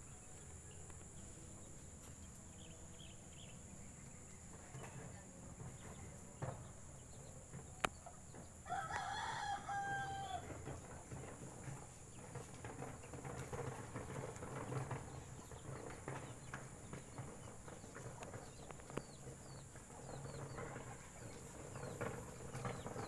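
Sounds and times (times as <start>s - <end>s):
rooster crowing: 8.6s - 10.6s.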